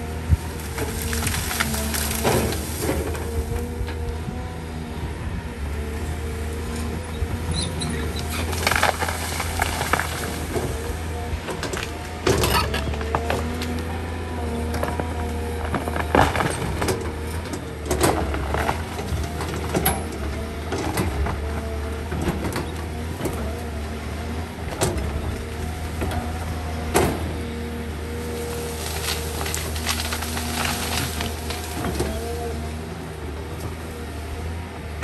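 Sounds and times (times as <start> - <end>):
excavator diesel engine running: 0.0 - 35.0
branches cracking and snapping: 0.1 - 4.0, 8.1 - 20.1, 28.0 - 32.6.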